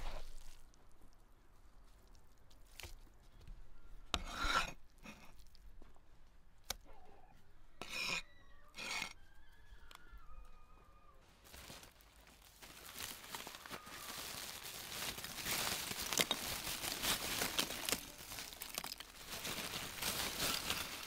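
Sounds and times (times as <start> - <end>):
cleaver scraping wooden block: 4.1 - 5.4, 7.8 - 9.2.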